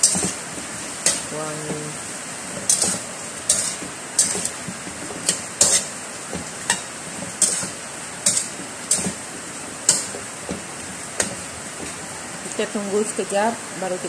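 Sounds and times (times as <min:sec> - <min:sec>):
metal spatula scraping a wok: 0:00.0 - 0:01.4, 0:02.5 - 0:06.0, 0:06.6 - 0:09.3, 0:09.9 - 0:10.2.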